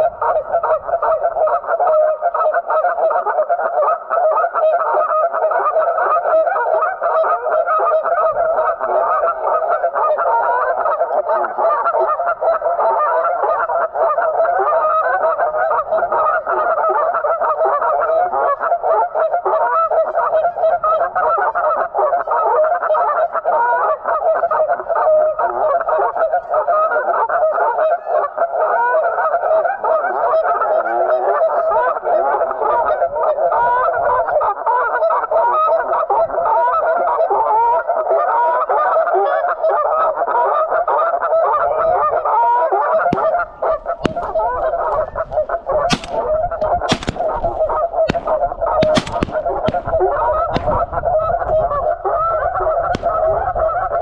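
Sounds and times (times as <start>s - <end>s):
geese honking: 34.6s - 54.0s.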